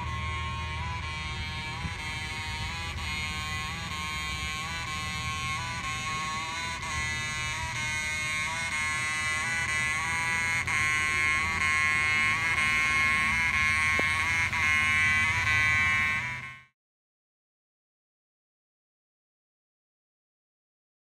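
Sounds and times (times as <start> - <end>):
fire alarm horn buzzing: 0.0 - 16.7.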